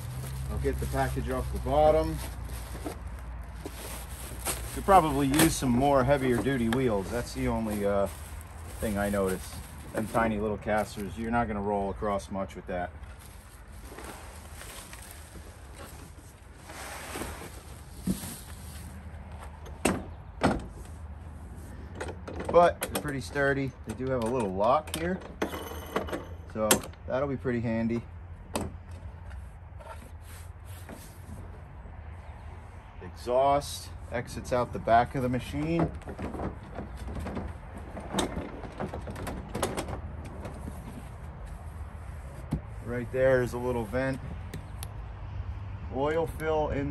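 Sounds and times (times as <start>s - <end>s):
caster wheels rustling: 0.0s - 11.5s.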